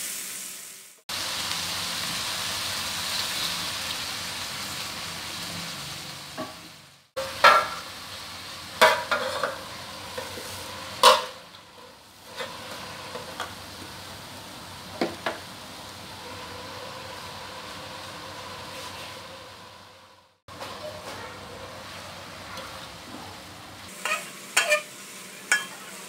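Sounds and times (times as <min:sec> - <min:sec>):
vegetables sizzling in a wok: 0:00.0 - 0:26.0
metal lid clanking on wok: 0:07.2 - 0:07.8, 0:08.8 - 0:10.3, 0:11.0 - 0:11.5, 0:24.0 - 0:24.9, 0:25.5 - 0:25.9.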